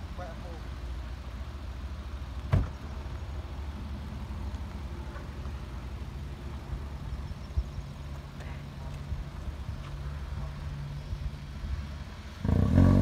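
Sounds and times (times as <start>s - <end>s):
car door shutting: 2.5s - 2.8s.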